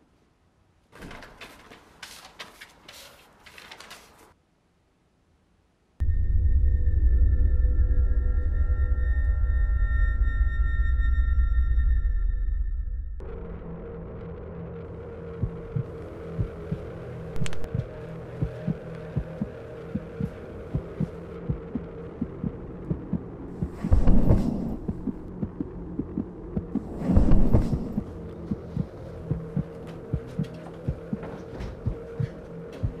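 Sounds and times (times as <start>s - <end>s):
low droning hum: 6.0s - 33.0s
heartbeat thumping: 15.4s - 33.0s.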